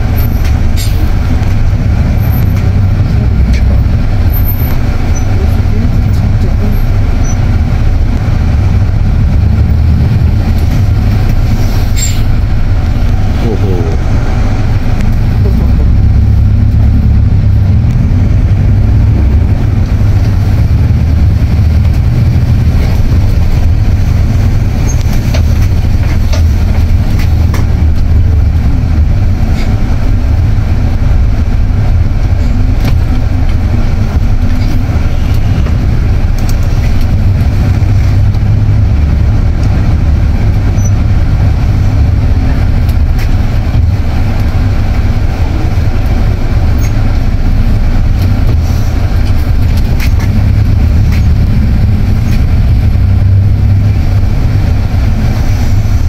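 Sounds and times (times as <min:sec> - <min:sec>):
bus engine rumble: 0:00.0 - 0:56.0.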